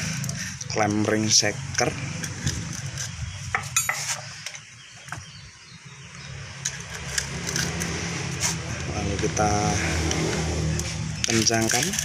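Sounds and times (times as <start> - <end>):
metallic clinks and clicks: 10.1 - 12.0.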